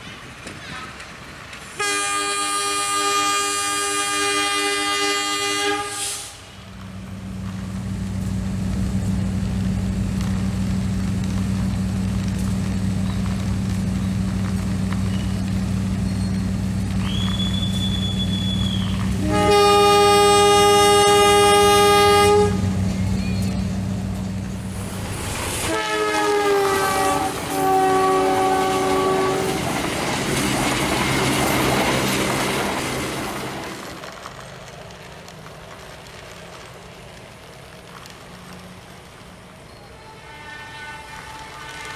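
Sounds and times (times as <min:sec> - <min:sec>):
electronic train horn: 0:01.8 - 0:06.4, 0:19.1 - 0:22.9, 0:25.6 - 0:29.6, 0:39.9 - 0:41.9.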